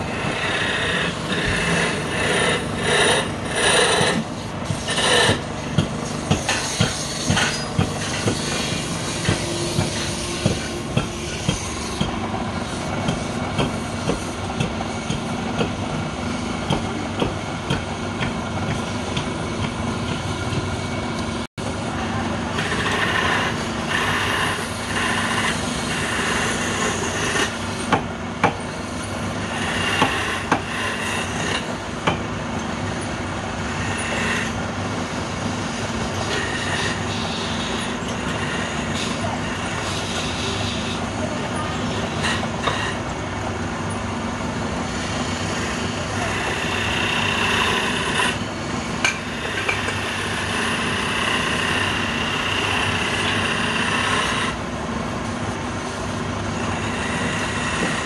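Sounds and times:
wood lathe humming: 0.0 - 5.5, 21.2 - 27.7, 29.3 - 31.7, 33.4 - 43.0, 44.8 - 48.4, 49.2 - 54.7, 56.2 - 58.0
chisel scraping spinning wood: 0.0 - 5.9, 22.5 - 27.9, 29.4 - 31.7, 33.8 - 34.6, 35.8 - 43.0, 44.9 - 48.4, 49.1 - 54.6, 56.6 - 58.0.

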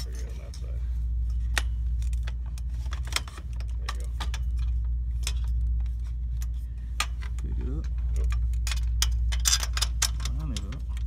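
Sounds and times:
metal tubes clicking and clinking: 0.0 - 11.0
steady low hum: 0.0 - 11.0.

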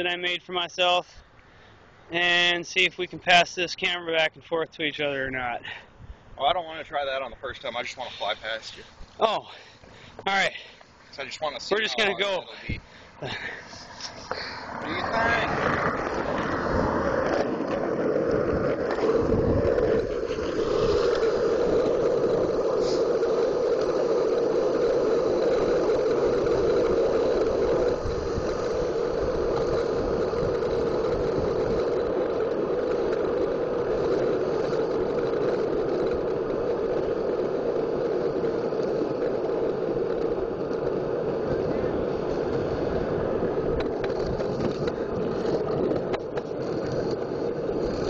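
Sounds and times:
skateboard wheels rolling on asphalt: 0.0 - 48.0.

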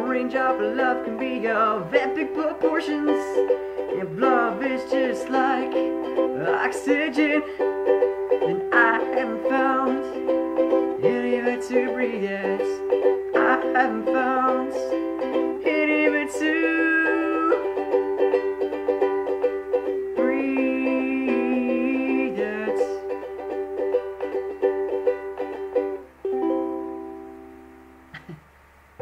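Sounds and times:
person singing: 0.0 - 25.6
ukulele strumming: 0.0 - 28.4.

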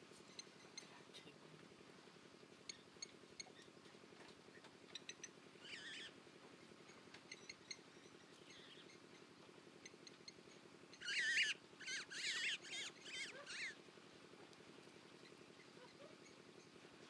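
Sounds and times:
low background hum: 0.0 - 17.0
bird warbling calls: 4.5 - 6.2, 6.9 - 13.8, 15.1 - 16.8.

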